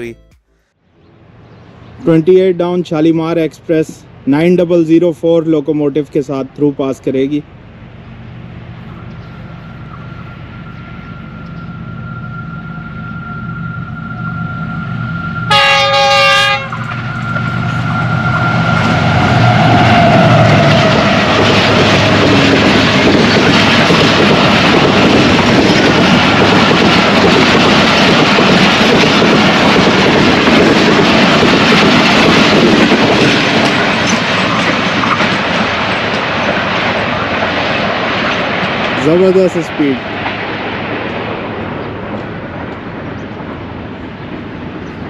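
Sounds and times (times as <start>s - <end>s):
locomotive engine passing: 7.4s - 45.0s
train coaches rushing over rails: 8.8s - 45.0s
train horn blast: 15.4s - 19.8s.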